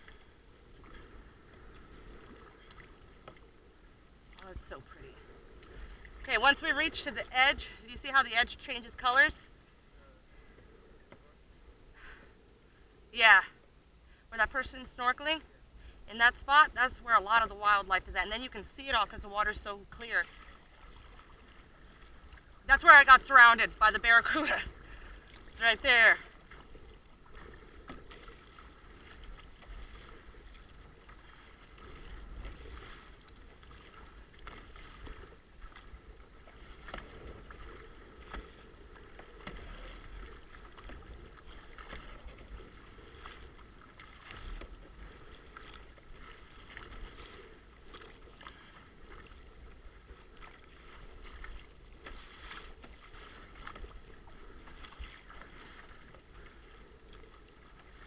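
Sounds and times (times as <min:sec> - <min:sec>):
paddle splashing in water: 0:00.0 - 0:12.4, 0:14.4 - 0:58.0
water washing around kayak: 0:00.0 - 0:58.0.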